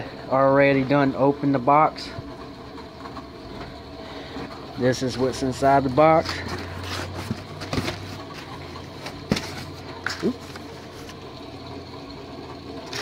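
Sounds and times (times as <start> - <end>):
cardboard and paper rustling: 6.2 - 11.2.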